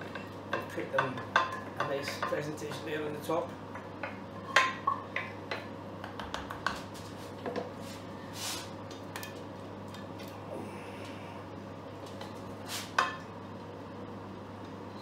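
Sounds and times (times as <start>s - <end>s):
utensil tapping on pan: 3.7s - 6.8s.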